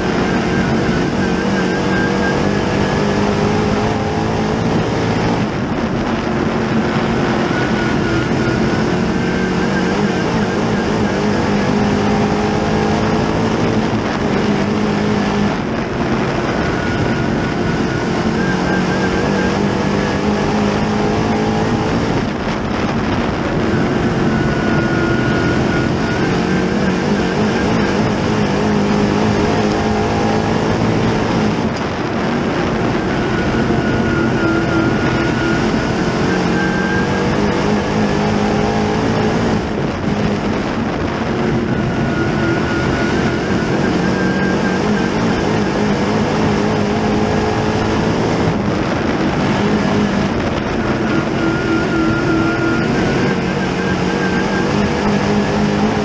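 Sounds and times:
race car engine accelerating: 0.0s - 56.0s.

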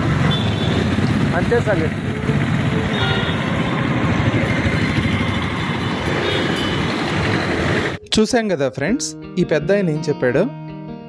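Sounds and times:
road traffic rumble: 0.0s - 8.0s.

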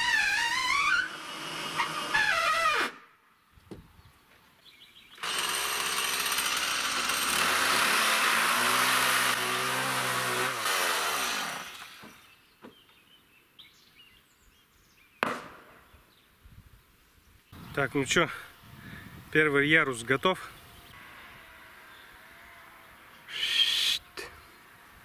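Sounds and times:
circular saw cutting wood: 0.0s - 3.0s, 5.2s - 12.3s
sharp knock: 15.2s - 15.7s.

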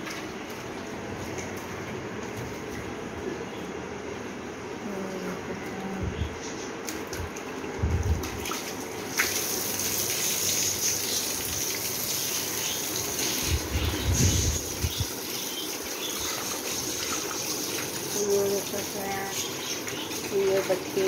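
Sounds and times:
hose spraying water on tiles: 8.2s - 21.0s.

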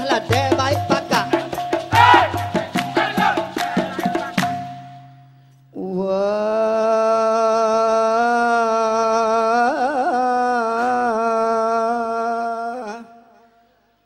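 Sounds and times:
man singing a long note: 5.7s - 13.5s.

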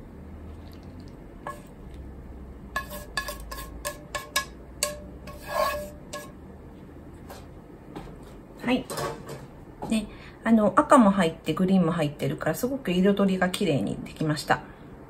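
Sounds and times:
chopsticks scraping a pan: 1.5s - 1.7s, 2.7s - 6.4s
sharp knocks on a ringing pan: 3.8s - 5.2s.

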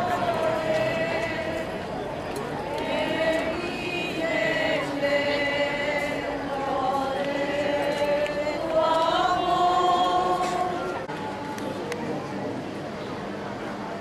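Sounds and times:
choir singing long notes: 0.0s - 2.0s, 2.6s - 11.4s.

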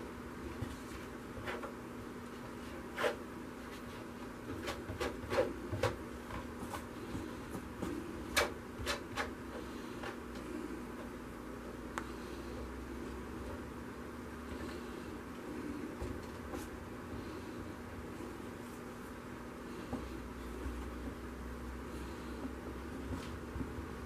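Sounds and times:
steady low hum: 0.0s - 24.0s
spreader rubbing on canvas: 2.4s - 5.8s.

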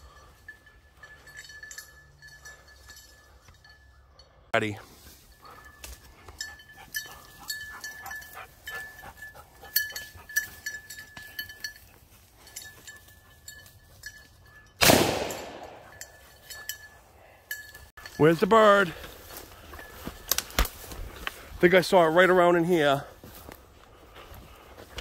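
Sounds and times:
light bell jingling: 0.0s - 20.4s
shotgun shot: 14.8s - 15.8s
rustling through brush: 15.9s - 25.0s.

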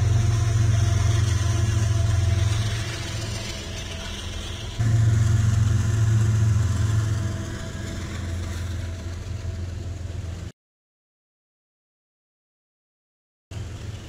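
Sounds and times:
diesel locomotives passing: 0.0s - 10.5s, 13.5s - 14.0s.

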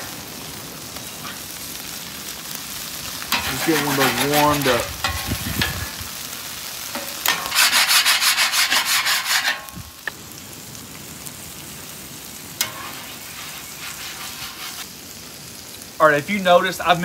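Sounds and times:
hash browns sizzling: 0.0s - 17.0s
metal scraper scraping griddle: 3.3s - 5.8s, 7.0s - 9.8s, 12.6s - 14.8s.

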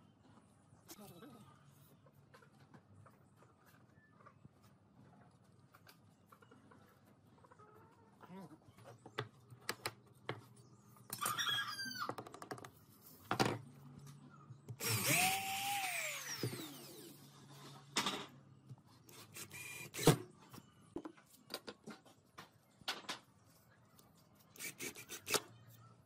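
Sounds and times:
cordless drill driving a screw: 14.8s - 17.2s, 19.1s - 20.2s, 24.6s - 25.4s
power drill boring into wood: 14.8s - 17.2s, 19.3s - 20.2s, 24.6s - 25.4s.

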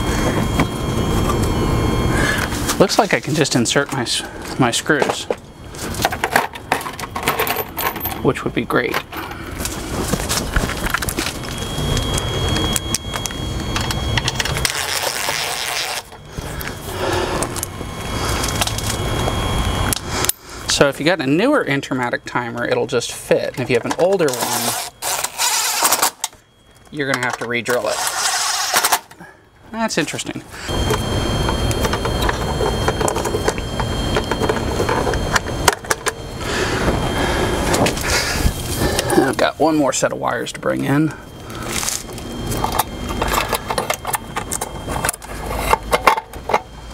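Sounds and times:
cordless drill motor whining: 0.0s - 6.2s, 9.2s - 21.5s, 30.5s - 40.0s, 40.6s - 46.9s
steady low rumble: 0.0s - 24.0s, 29.5s - 46.9s
pool pump motor humming: 30.5s - 46.9s.

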